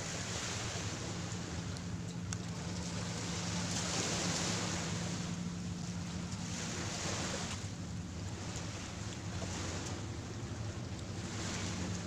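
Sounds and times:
waves washing on beach: 0:00.0 - 0:01.8, 0:02.6 - 0:12.0
low steady hum: 0:00.0 - 0:12.0.

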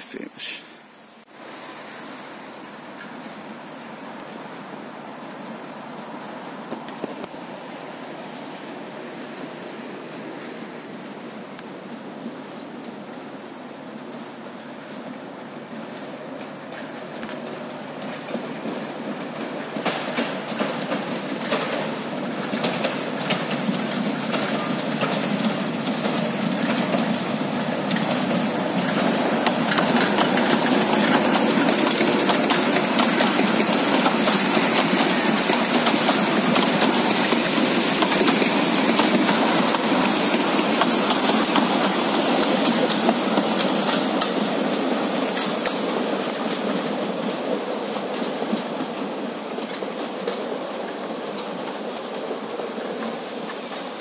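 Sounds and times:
passenger train passing: 0:00.0 - 0:54.0
train wheels clicking over rail joints: 0:14.0 - 0:54.0.

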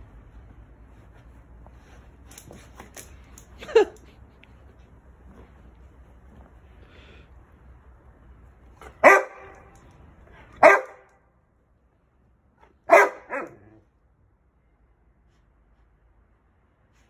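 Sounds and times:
dog barking: 0:08.8 - 0:09.8, 0:10.6 - 0:11.1, 0:12.8 - 0:13.8.

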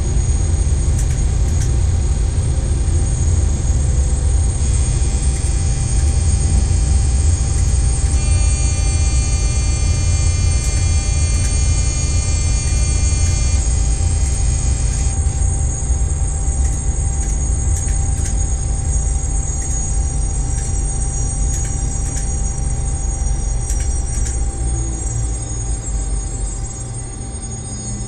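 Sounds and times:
train running gear rumble: 0:00.0 - 0:08.2, 0:16.4 - 0:24.7
high whine: 0:00.0 - 0:28.0.

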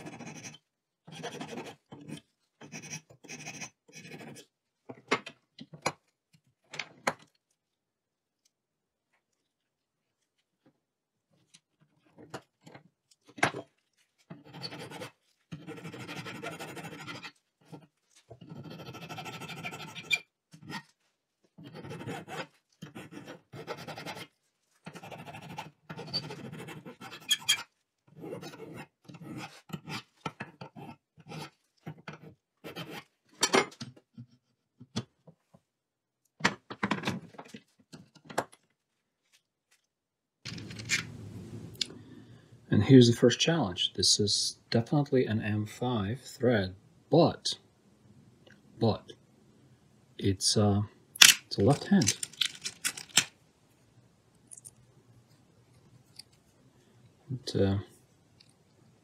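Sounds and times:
file rasping on metal: 0:00.0 - 0:04.5, 0:14.4 - 0:17.8, 0:18.4 - 0:20.8, 0:21.6 - 0:24.3, 0:24.9 - 0:31.5.

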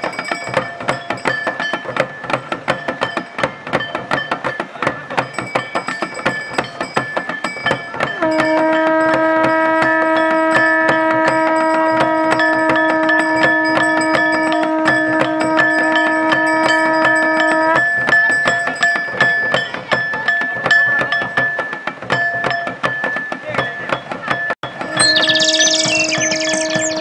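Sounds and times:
conch shell long note: 0:08.2 - 0:17.8.

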